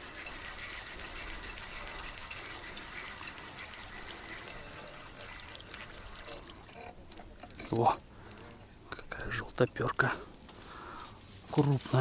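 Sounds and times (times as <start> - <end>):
steady water wash: 0.0 - 8.5
water splashing and sloshing: 0.0 - 8.8.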